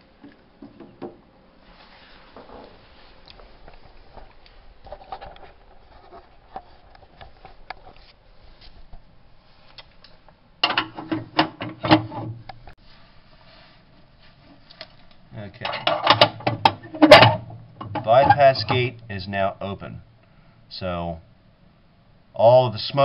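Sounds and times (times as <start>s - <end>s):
metal clanking and grating: 15.6s - 18.9s.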